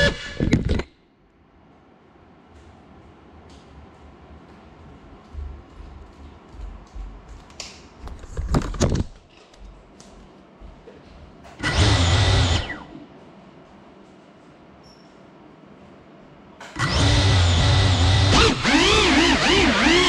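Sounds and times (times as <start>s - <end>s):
drone motors spinning up: 11.6s - 12.9s, 16.8s - 20.0s.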